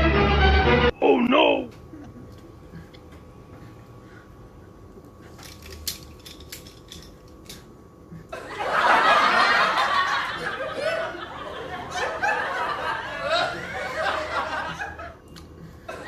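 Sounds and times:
loud chuckling laughter: 8.3s - 15.2s.

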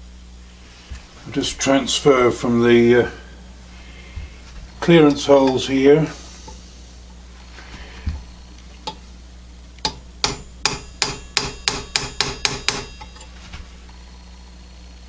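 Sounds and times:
hammer striking metal punch: 9.8s - 13.3s.

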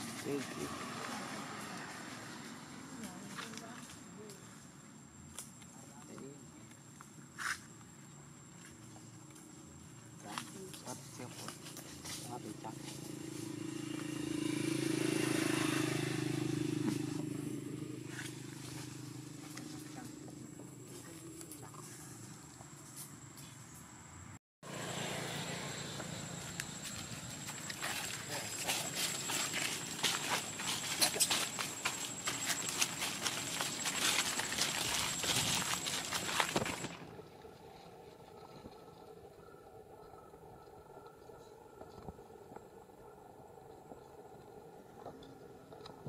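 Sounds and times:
vehicle engine humming: 10.1s - 46.0s
footsteps crunching dry leaves: 18.0s - 20.0s, 25.5s - 37.0s.

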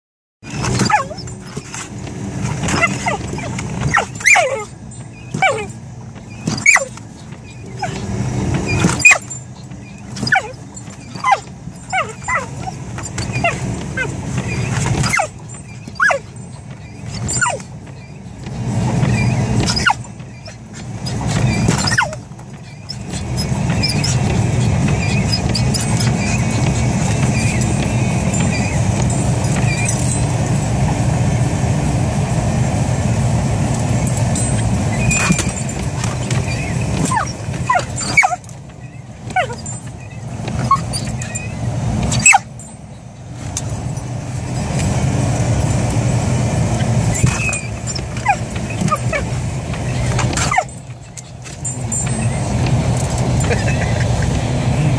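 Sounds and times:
car low steady hum: 0.4s - 54.9s
dog yipping barking and growling: 0.5s - 31.0s, 34.0s - 42.7s, 46.7s - 54.4s.

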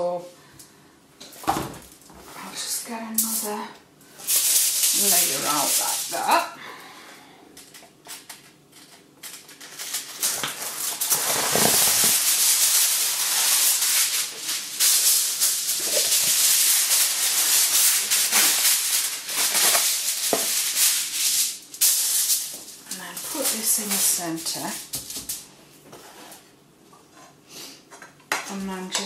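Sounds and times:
aluminium foil crinkling: 1.9s - 6.5s, 7.6s - 25.5s.

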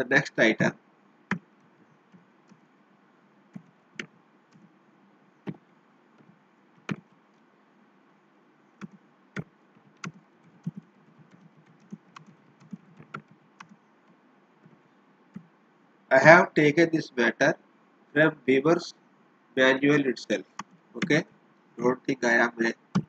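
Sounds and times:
computer keyboard typing: 8.8s - 13.8s.

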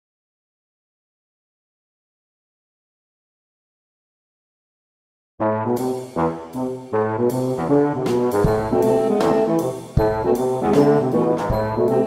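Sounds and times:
brass-led instrumental music: 5.4s - 12.0s.

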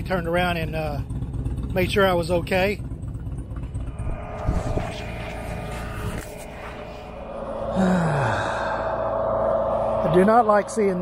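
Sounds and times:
steady whine: 0.0s - 11.0s
truck engine rumbling: 0.0s - 11.0s
brief falling tone: 3.4s - 11.0s.

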